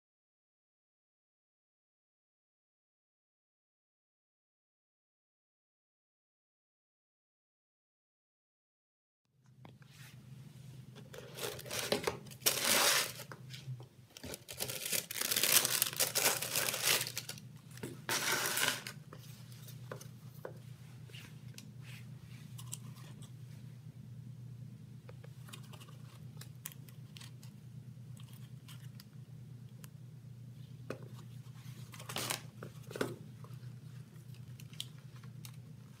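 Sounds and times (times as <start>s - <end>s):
low steady hum: 9.3s - 36.0s
cardboard box and tissue paper rustling: 11.2s - 17.4s, 18.1s - 19.8s, 31.5s - 33.0s.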